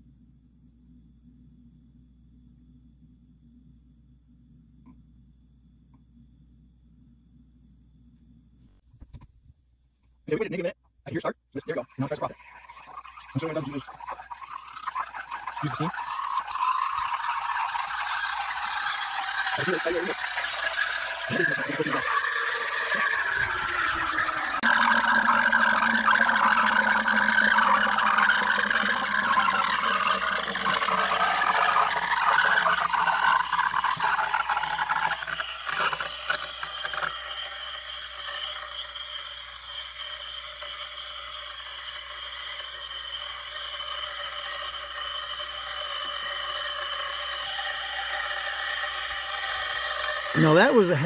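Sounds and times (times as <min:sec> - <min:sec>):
steam wand frothing milk: 0:11.6 - 0:51.0.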